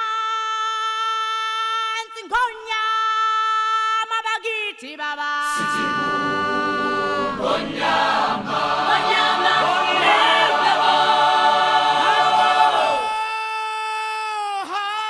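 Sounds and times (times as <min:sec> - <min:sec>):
choir singing sustained chords: 0:05.5 - 0:13.1.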